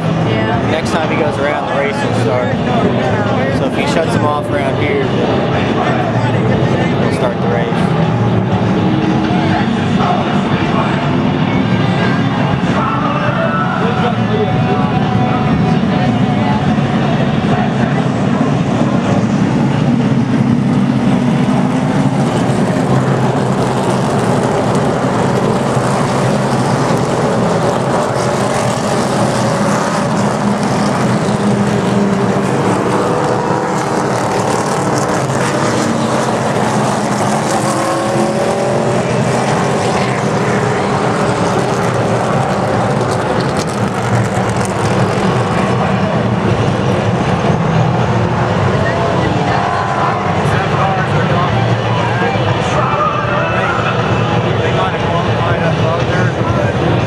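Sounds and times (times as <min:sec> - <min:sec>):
race truck engines passing: 0:00.0 - 0:57.0.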